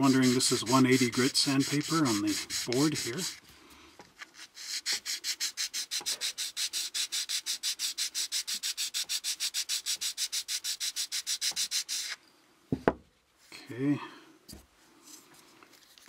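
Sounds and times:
sandpaper rasping on plastic: 0.0s - 3.4s, 4.2s - 12.2s.

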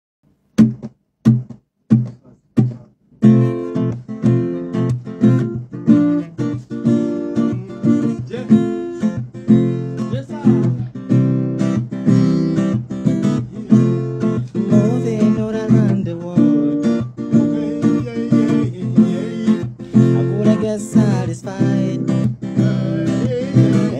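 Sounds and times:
acoustic guitar strumming: 0.5s - 23.9s.

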